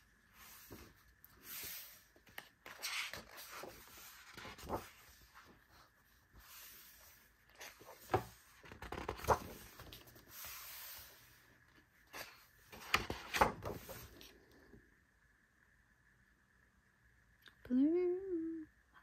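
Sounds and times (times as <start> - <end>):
book pages turning: 0.3 - 14.4
page flaps: 0.4 - 5.6, 6.4 - 11.1, 12.1 - 14.3.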